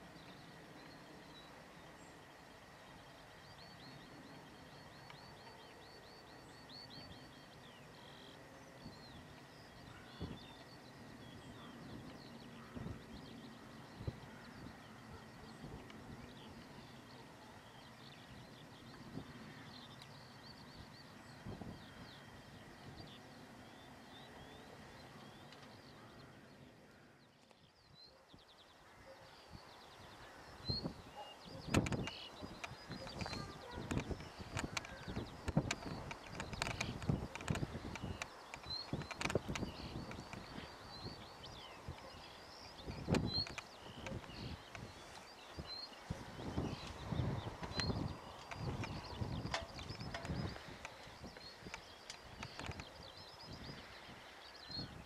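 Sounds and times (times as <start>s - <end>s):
small birds chirping: 0.0s - 55.0s.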